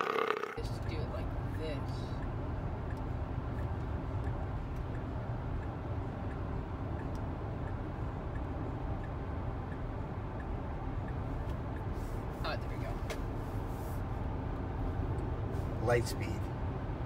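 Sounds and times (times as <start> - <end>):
road rumble inside car: 0.0 - 17.0
faint light ticks: 1.5 - 12.0.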